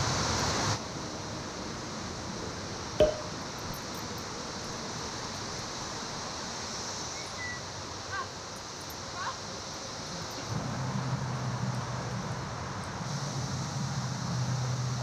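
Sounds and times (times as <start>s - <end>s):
outdoor background hiss: 0.0s - 15.0s
sharp metallic clink: 3.0s - 4.0s.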